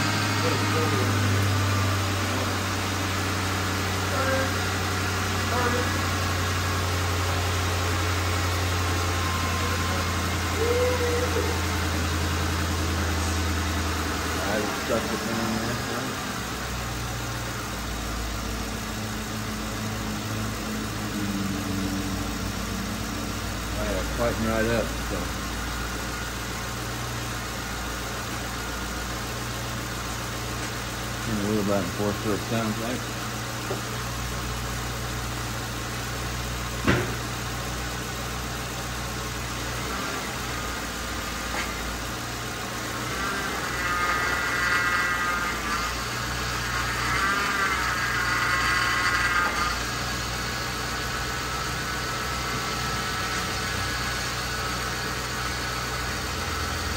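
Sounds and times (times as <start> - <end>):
car engine idling: 0.0 - 56.9
power steering pump whine: 0.0 - 56.9
sharp knock: 36.8 - 37.2.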